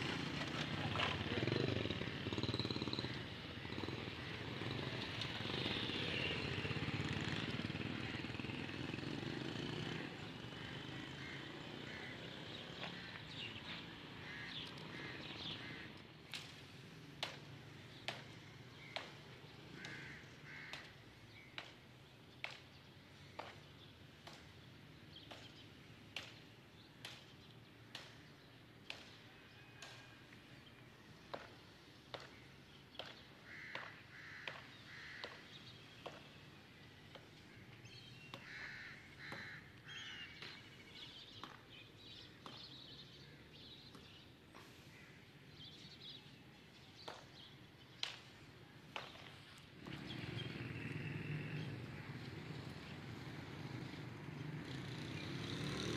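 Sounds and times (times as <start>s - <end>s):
crows cawing: 10.5s - 13.5s, 14.2s - 16.0s, 19.7s - 21.1s, 33.4s - 35.6s, 38.4s - 40.6s.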